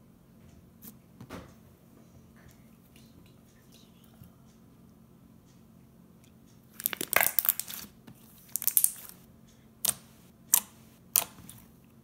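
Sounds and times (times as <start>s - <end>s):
slime squishing: 6.8s - 9.2s, 9.8s - 11.7s.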